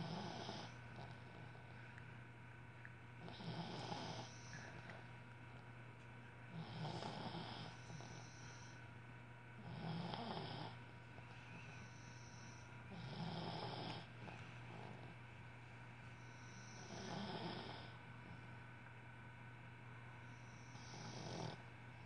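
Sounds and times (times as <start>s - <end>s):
dog snoring: 0.0s - 1.8s, 3.2s - 4.8s, 6.5s - 8.8s, 9.6s - 10.8s, 11.5s - 15.2s, 16.2s - 18.5s, 20.2s - 21.7s.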